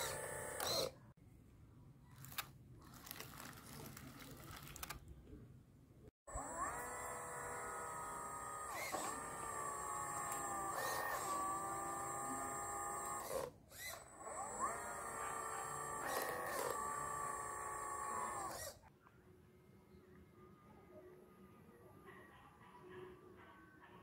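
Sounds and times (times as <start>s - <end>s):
electric motors whining: 0.0s - 1.0s, 6.3s - 18.8s.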